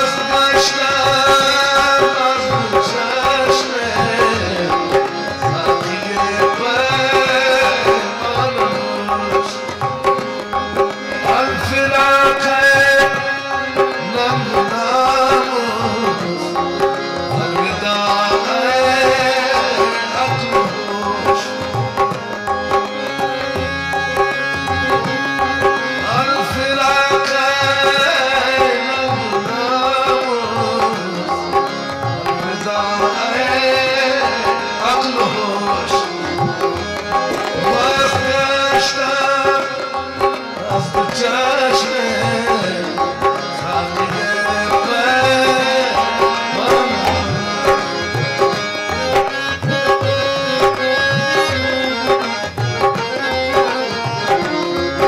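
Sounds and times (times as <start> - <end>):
man singing ornamented phrases: 0.0 - 10.2, 10.8 - 22.1, 23.8 - 55.0
harmonium chords and melody: 0.0 - 55.0
tabla rhythm: 0.0 - 55.0.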